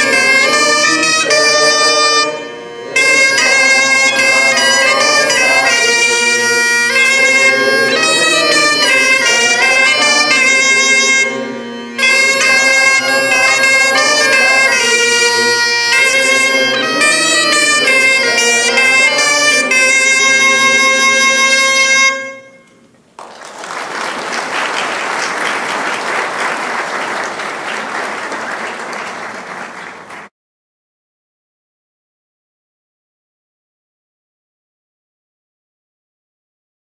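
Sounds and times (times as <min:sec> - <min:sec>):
bombarde and bagpipe melody: 0:00.0 - 0:22.8
bagpipe drone: 0:00.0 - 0:22.9
audience applause: 0:23.2 - 0:30.3.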